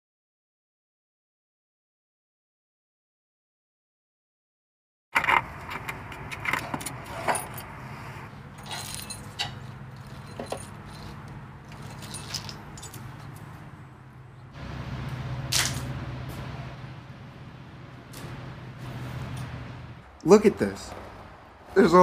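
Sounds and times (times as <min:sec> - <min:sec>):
hose scraping and rattling: 0:05.2 - 0:13.6
low steady hum: 0:05.2 - 0:21.6
metal fittings clinking: 0:08.6 - 0:13.4.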